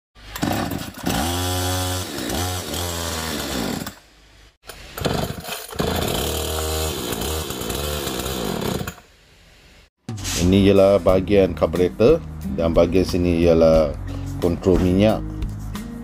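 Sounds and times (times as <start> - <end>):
chainsaw engine revving: 0.2 - 4.0, 4.9 - 9.0.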